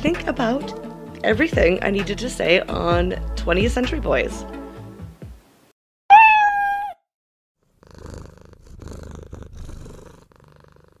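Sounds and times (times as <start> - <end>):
cat meowing: 6.1 - 7.0
cat purring: 7.6 - 11.0.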